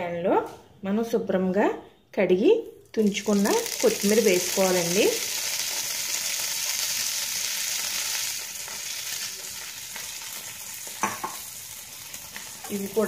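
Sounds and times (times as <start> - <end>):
leaves sizzling in hot oil: 3.0 - 13.0.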